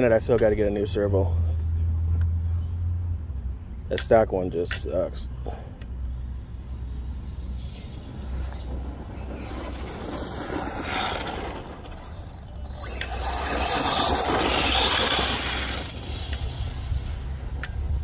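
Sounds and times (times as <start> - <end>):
rc buggy rattling over dirt: 7.6 - 17.2
sharp clicks: 12.6 - 17.8.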